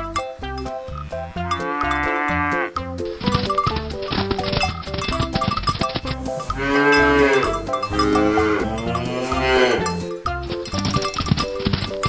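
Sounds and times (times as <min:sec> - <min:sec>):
background music: 0:00.0 - 0:12.0
cow mooing: 0:00.9 - 0:02.8, 0:06.5 - 0:10.1.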